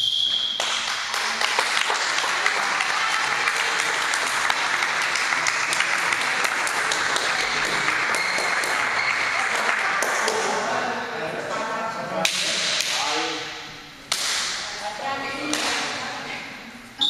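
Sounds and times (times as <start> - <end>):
crowd applause: 0.6 - 10.6
sharp single claps: 12.2 - 13.1, 14.1 - 14.7, 15.5 - 15.9.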